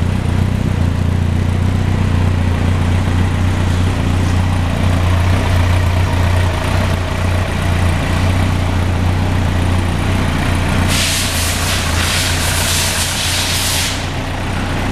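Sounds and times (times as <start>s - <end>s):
motorcycle engine idling: 0.0s - 14.9s
pulsing hiss: 10.9s - 14.2s.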